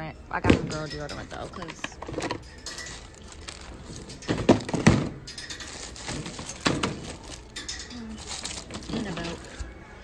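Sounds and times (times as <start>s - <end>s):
items knocking into plastic bin: 3.9s - 5.3s, 5.9s - 7.4s.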